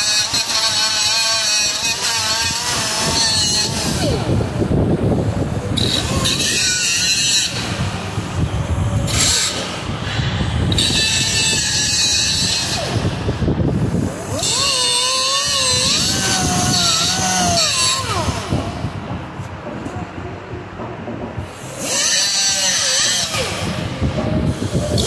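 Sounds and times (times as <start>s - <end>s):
grinder cutting metal: 0.0s - 19.8s, 21.4s - 25.0s.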